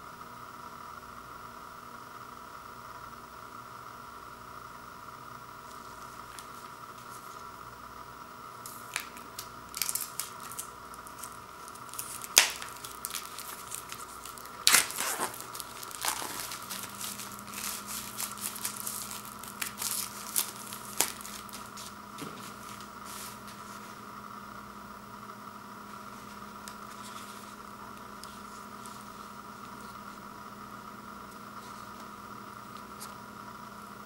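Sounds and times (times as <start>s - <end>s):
plastic film tearing: 8.6s - 23.6s
plastic film crinkling: 8.6s - 24.0s.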